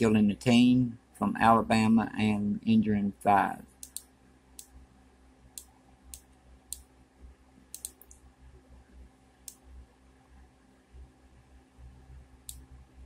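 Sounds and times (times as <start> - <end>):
low steady hum: 0.0 - 13.0
computer mouse clicks: 3.8 - 4.8, 7.7 - 8.2, 9.4 - 9.7.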